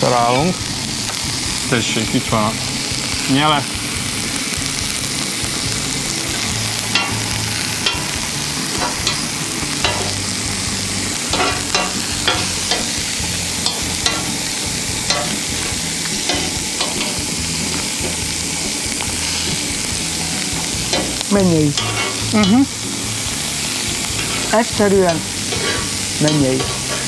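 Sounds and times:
shrimp sizzling on a grill: 0.0 - 27.0
metal tongs clicking: 6.9 - 7.2, 7.8 - 8.1, 8.7 - 10.2, 11.3 - 13.0, 13.6 - 14.5, 15.1 - 17.2, 20.9 - 22.6.

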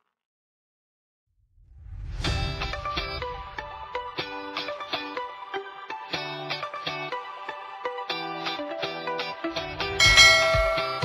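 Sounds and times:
instrumental music short pitched notes: 10.0 - 11.0.

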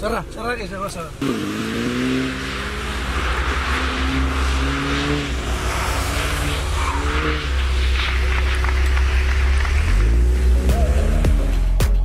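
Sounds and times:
car engine revving: 1.1 - 12.0
tyre hiss on wet road: 1.2 - 10.6.

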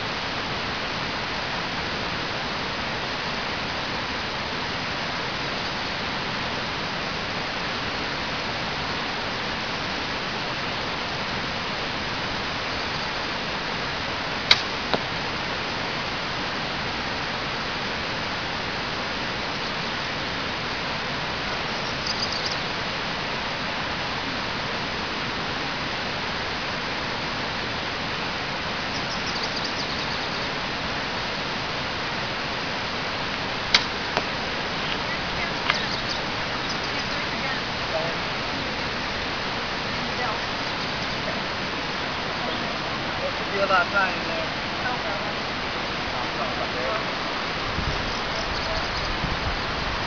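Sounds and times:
steady hiss: 0.0 - 50.0
bow release snap: 14.5 - 15.0, 33.7 - 34.0.

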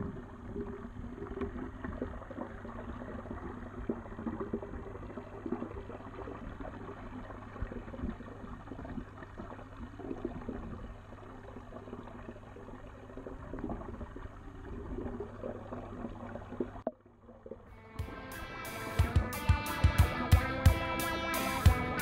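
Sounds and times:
electric guitar music: 17.7 - 22.0.

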